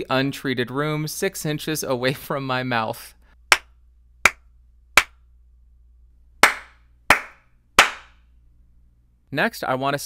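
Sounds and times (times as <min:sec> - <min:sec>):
sharp hand claps: 0:06.4 - 0:08.2.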